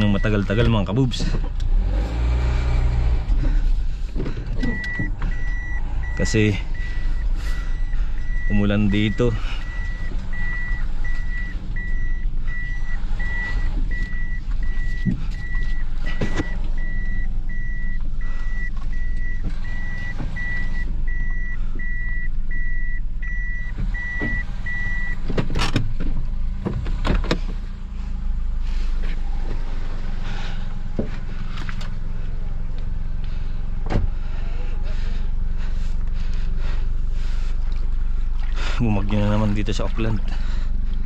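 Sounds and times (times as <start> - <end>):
car engine idling: 0.0 - 41.0
reverse warning beeper: 4.6 - 25.2.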